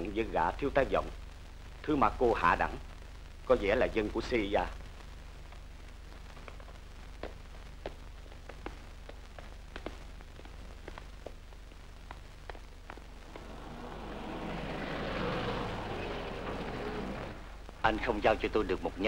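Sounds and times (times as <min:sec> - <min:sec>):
low hum: 0:10.2 - 0:17.8
noisy wash: 0:13.0 - 0:17.7.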